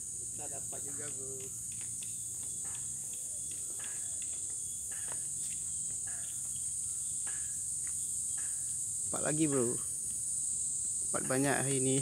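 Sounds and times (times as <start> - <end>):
high-pitched insect chorus: 0.0 - 12.0
light rustles and ticks: 0.7 - 8.8.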